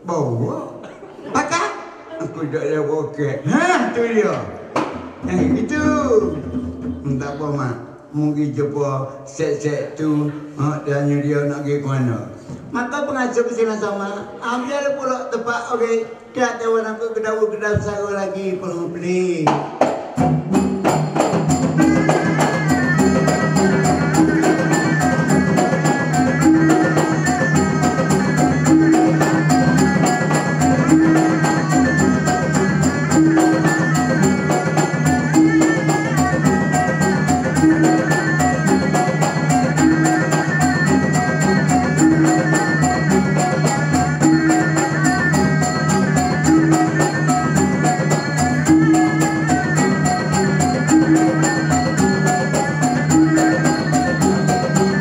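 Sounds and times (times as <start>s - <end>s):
fast percussion beat: 4.6s - 7.4s, 19.4s - 55.0s
high wavering melody: 21.2s - 55.0s.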